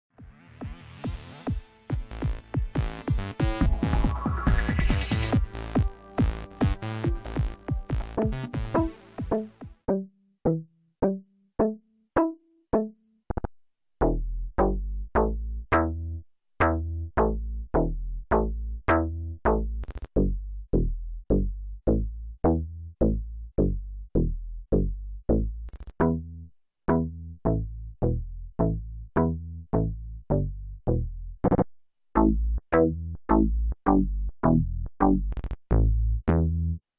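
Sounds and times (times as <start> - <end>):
plucked synth bass notes: 2.7 - 13.4, 14.0 - 36.8
deep heavy bass: 14.0 - 26.3, 26.9 - 31.5, 32.2 - 36.8.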